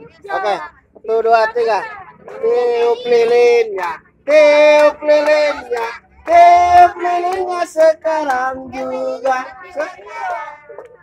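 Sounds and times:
child and woman singing: 0.2 - 3.6, 4.5 - 11.0.

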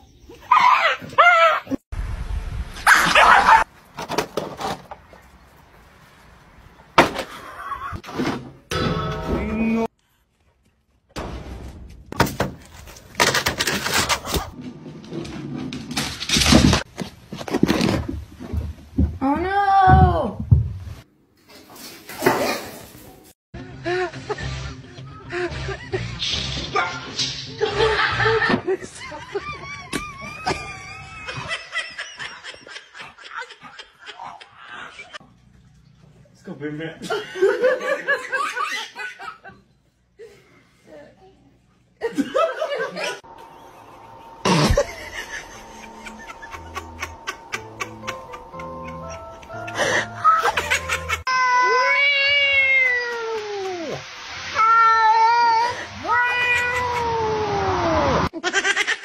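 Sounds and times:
high wavering squeal: 43.3 - 50.6
person snickering: 44.4 - 51.3
cat yowling meows: 51.3 - 53.6, 54.6 - 57.4.

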